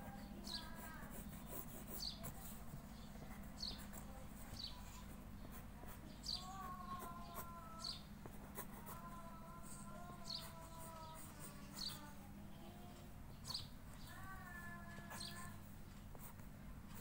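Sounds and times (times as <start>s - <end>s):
pencil scratching on paper: 0.0s - 7.6s, 8.2s - 12.2s, 15.1s - 17.0s
bird chirping: 0.2s - 8.1s, 9.7s - 15.6s.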